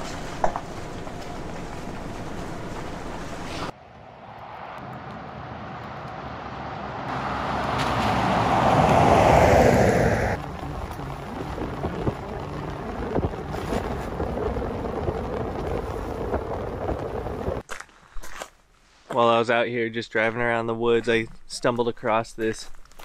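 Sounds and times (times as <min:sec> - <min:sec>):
vehicle passing on wet road: 0:00.0 - 0:17.6
tyre road and wind noise: 0:00.0 - 0:17.7.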